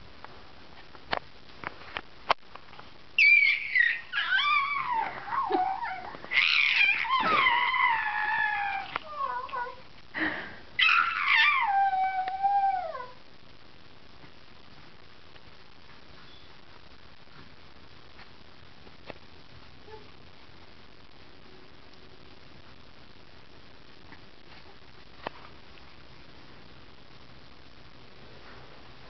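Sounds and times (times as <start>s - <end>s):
baby cooing and squealing: 3.2s - 9.8s.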